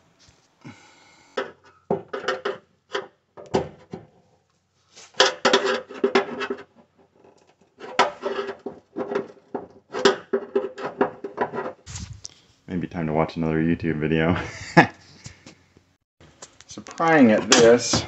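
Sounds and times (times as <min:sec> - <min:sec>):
tool scraping sheet metal: 0:05.0 - 0:06.7, 0:07.3 - 0:12.2.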